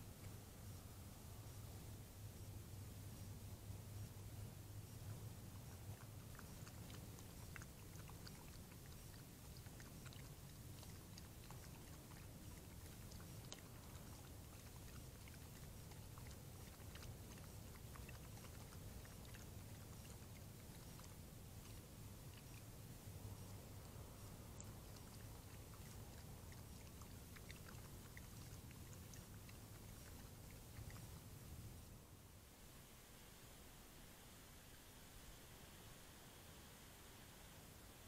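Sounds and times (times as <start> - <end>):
steady low hum: 0.0 - 38.0
animal lapping water: 3.2 - 31.8.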